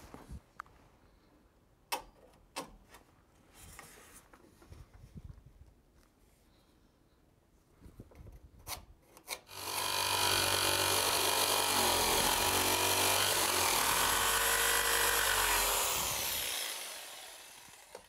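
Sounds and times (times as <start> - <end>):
reciprocating saw cutting wood: 9.5 - 18.0.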